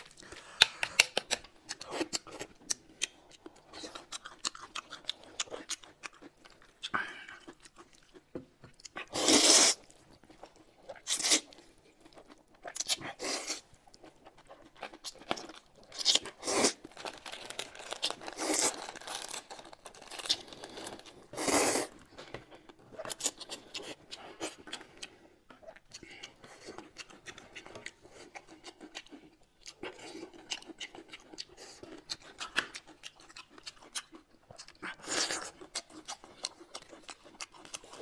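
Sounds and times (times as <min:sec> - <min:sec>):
chewing: 0:00.0 - 0:21.3, 0:21.9 - 0:38.0
loud slurping: 0:09.1 - 0:09.8.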